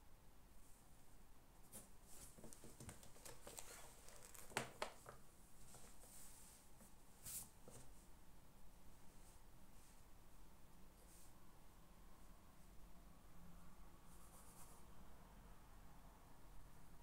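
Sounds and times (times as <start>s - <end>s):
paper rustling: 1.7s - 6.2s.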